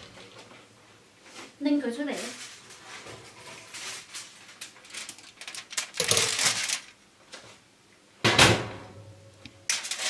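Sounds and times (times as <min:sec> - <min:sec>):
aluminium foil crinkling: 0:01.8 - 0:07.0, 0:09.7 - 0:10.0.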